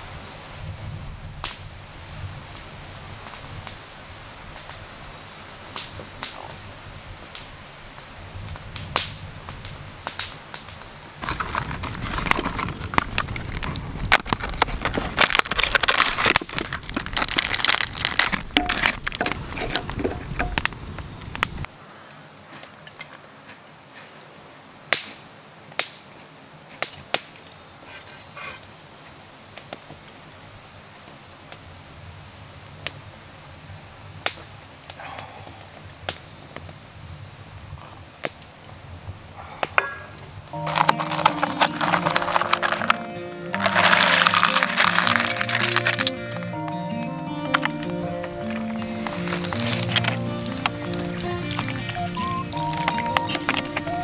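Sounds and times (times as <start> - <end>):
dense crackling and clicking: 10.0 - 21.7, 40.4 - 46.6, 47.3 - 54.0.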